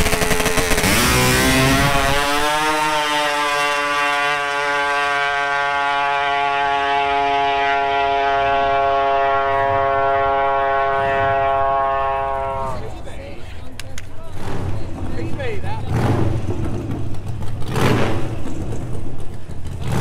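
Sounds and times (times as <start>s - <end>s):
two-stroke drag bike engine: 0.0s - 7.3s, 14.2s - 20.0s.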